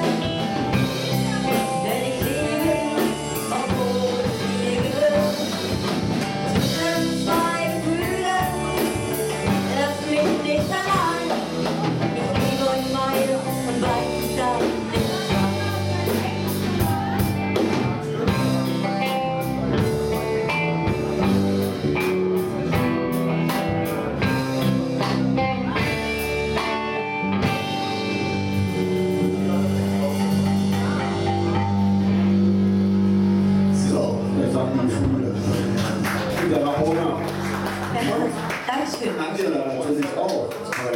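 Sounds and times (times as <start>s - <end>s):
woman singing: 0.0s - 17.6s
live rock band playing: 0.0s - 40.8s.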